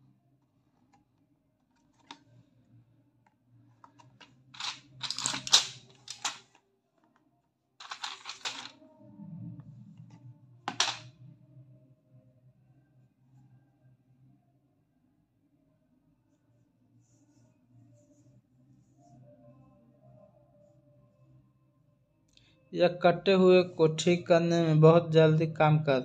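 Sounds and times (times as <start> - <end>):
boxes clicking: 3.9 - 6.6, 7.8 - 8.7, 10.7 - 11.0
packaging rustling: 4.0 - 6.6, 7.8 - 8.7.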